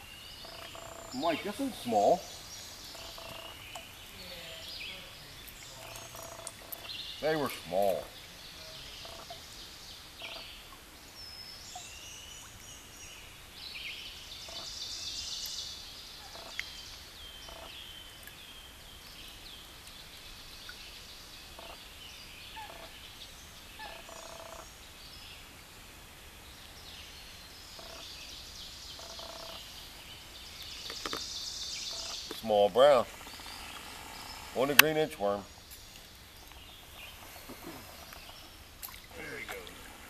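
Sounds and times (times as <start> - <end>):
wild birds singing: 0.0 - 40.0.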